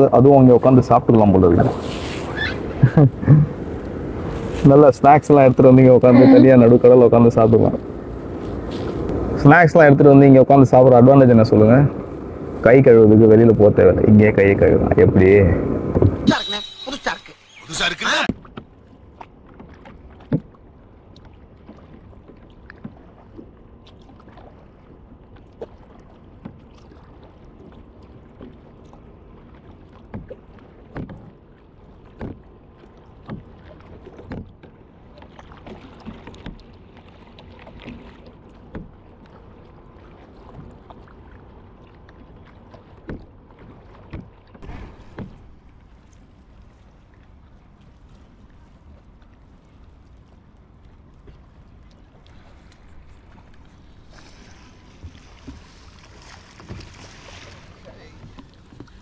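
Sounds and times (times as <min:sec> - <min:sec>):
paddle splashing in water: 0:00.4 - 0:09.4, 0:17.6 - 0:59.0
paddle knocking on hull: 0:14.8 - 0:16.3, 0:18.2 - 0:20.7, 0:29.5 - 0:31.4, 0:32.0 - 0:39.4, 0:42.2 - 0:46.2, 0:52.3 - 0:59.0.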